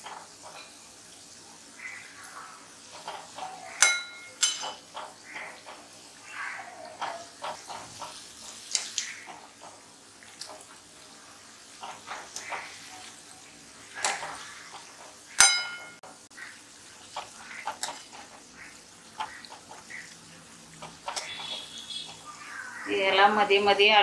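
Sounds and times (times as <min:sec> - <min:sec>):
oil sizzling with pops: 0:00.0 - 0:24.0
metallic clink: 0:03.8 - 0:04.8, 0:15.4 - 0:16.0.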